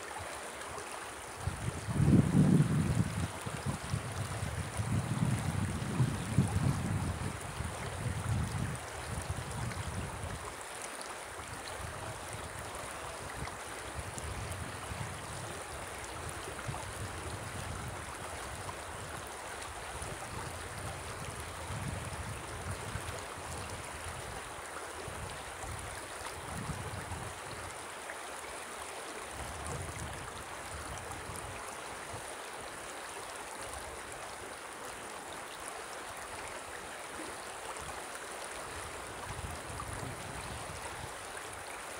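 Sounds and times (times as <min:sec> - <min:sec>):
river flowing over stones: 0:00.0 - 0:41.9
wind buffeting microphone: 0:01.4 - 0:10.4, 0:13.2 - 0:19.1, 0:20.0 - 0:24.3, 0:25.1 - 0:27.4.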